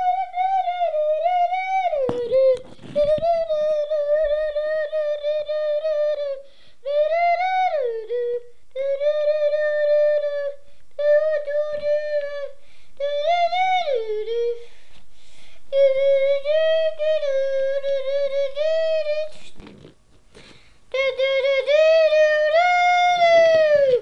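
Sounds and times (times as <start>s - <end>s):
child humming a high note: 15.7s - 24.0s.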